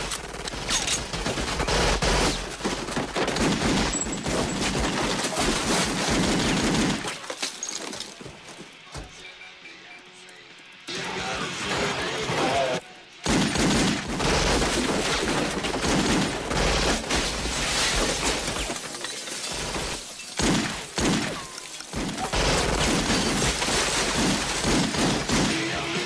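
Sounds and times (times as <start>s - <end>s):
rapid handgun gunfire: 0.0s - 7.0s, 13.2s - 17.4s, 20.4s - 25.9s
glass shattering: 3.6s - 8.2s, 17.1s - 25.3s.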